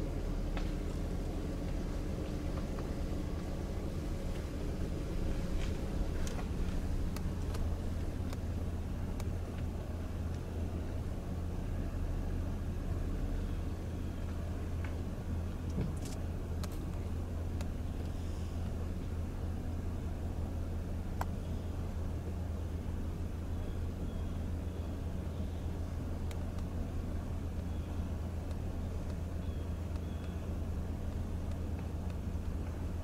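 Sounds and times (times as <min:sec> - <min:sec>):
car driving with low rumble: 0:00.0 - 0:33.0
faint clicks: 0:26.2 - 0:32.9.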